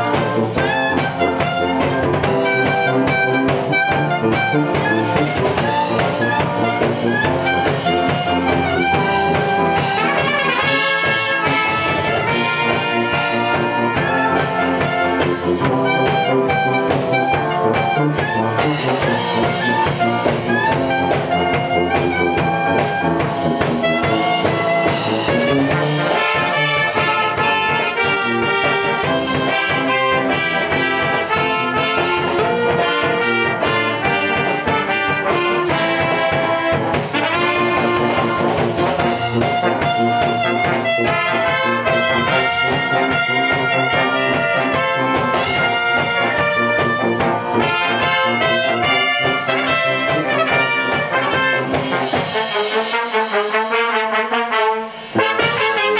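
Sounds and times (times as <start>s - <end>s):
brass band playing: 0.0s - 55.9s.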